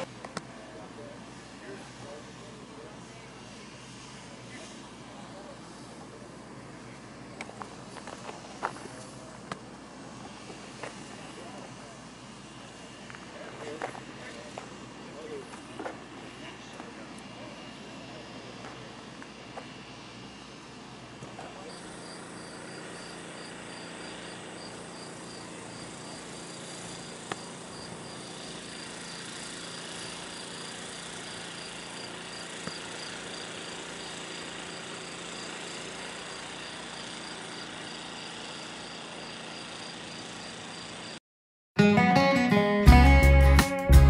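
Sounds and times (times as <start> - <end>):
cricket chirping: 37.5 - 41.2.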